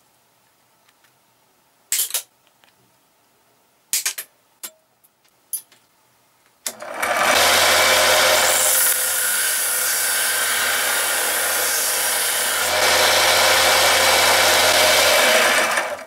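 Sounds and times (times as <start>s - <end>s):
bench power tool running: 6.7s - 16.0s.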